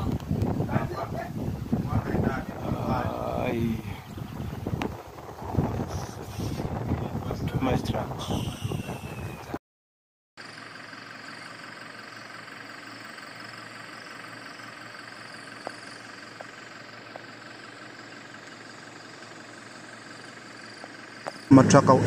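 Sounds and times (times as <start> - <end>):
distant truck engines idling: 10.4 - 22.0.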